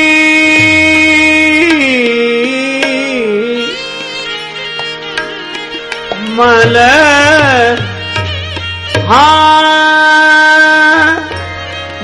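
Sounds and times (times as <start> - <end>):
gliding melodic line: 2.8 - 9.0.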